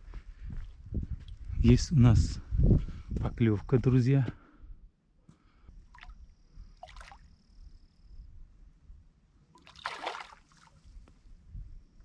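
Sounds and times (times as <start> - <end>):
fish splashing in water: 6.8 - 7.2, 9.6 - 10.8.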